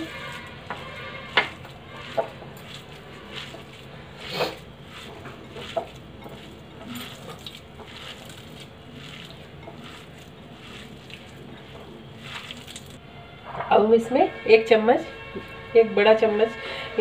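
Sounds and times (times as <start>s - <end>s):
food squishing in bowl: 0.0s - 13.0s.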